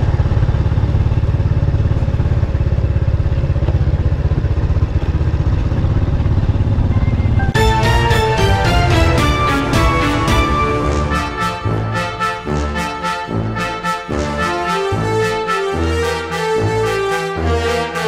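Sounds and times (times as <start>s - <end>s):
motorcycle engine running: 0.0s - 13.5s
background music: 6.9s - 18.0s.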